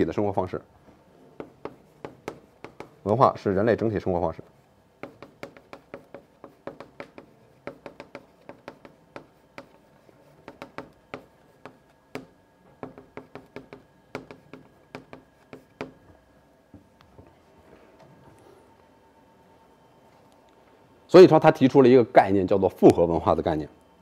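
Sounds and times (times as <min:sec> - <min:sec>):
chalk tapping on a blackboard: 0:01.4 - 0:03.0, 0:04.5 - 0:16.0.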